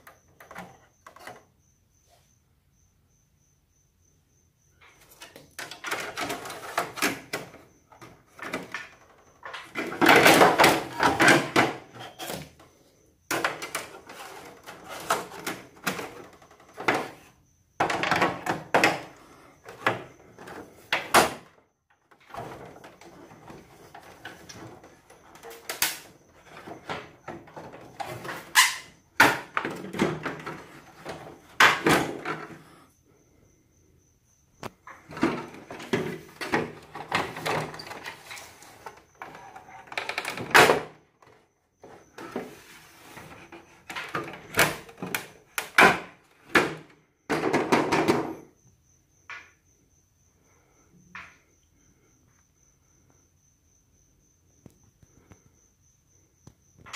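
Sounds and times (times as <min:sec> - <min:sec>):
objects being handled: 0:04.8 - 0:32.9.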